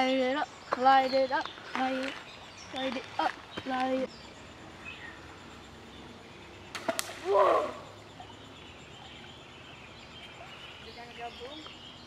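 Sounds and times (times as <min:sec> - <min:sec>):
firecracker plopping into water: 0:06.8 - 0:07.3.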